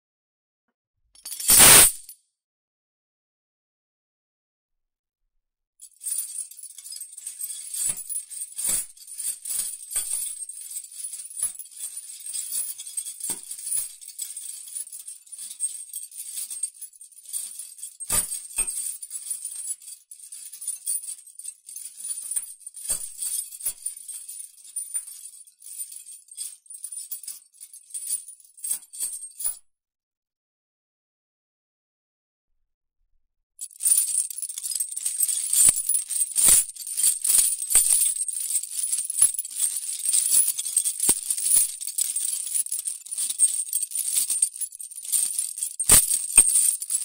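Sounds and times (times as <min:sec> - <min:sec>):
metal chain rattling: 0:01.2 - 0:02.0, 0:06.0 - 0:29.5, 0:33.6 - 0:47.0
heavy chain clanks: 0:06.7 - 0:16.6, 0:17.2 - 0:19.6, 0:33.6 - 0:47.0.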